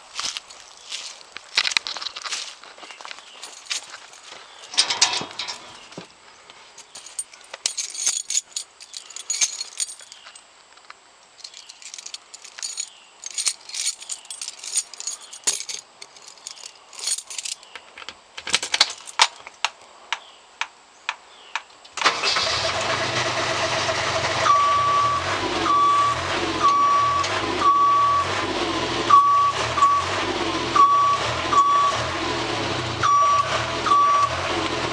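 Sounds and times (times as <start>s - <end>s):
keys jangling: 6.8s - 10.4s, 11.4s - 17.7s
diesel engine starting and running: 22.0s - 34.9s
warning beeper: 24.4s - 28.4s, 29.0s - 32.2s, 33.0s - 34.5s.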